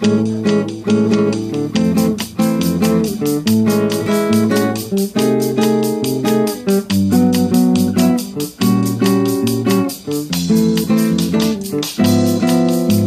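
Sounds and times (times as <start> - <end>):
classical guitar playing: 0.0 - 13.0.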